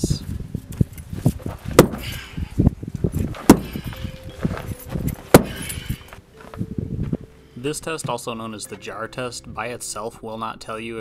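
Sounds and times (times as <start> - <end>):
hand tool striking ground: 1.7 - 2.4, 3.2 - 6.1
clinking and gritty rattling: 3.0 - 6.2.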